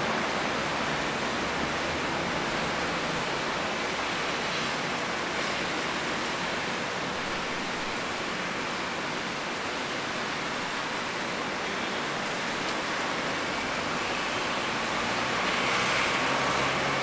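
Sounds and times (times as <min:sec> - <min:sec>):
rain hissing: 0:00.0 - 0:17.0
vehicle passing: 0:14.7 - 0:17.0.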